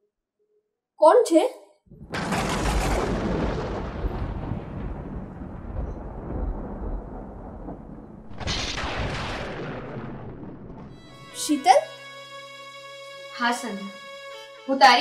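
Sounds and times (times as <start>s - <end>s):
deep rumbling boom: 1.9s - 12.0s.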